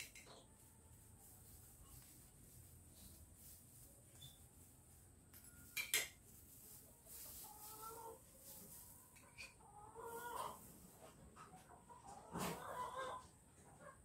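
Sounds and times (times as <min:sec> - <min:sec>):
chickens calling: 0:07.1 - 0:14.0.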